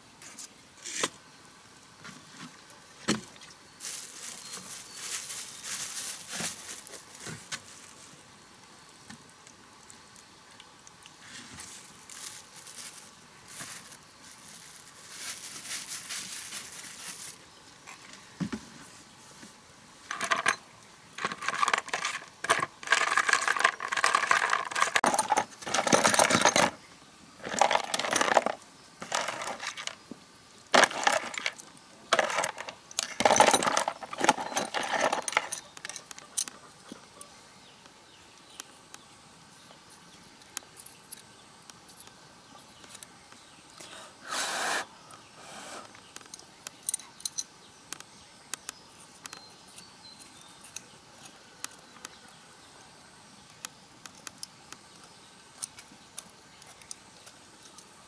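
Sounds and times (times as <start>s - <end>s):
metal pipe rattling in plastic basin: 20.1s - 20.6s, 21.2s - 26.8s, 27.4s - 30.0s, 30.7s - 36.0s.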